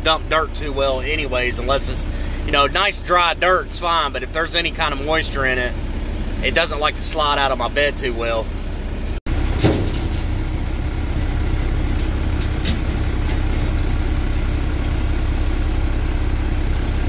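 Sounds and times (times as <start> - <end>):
diesel engines idling: 0.0 - 17.0
faint metal clank: 9.6 - 10.6.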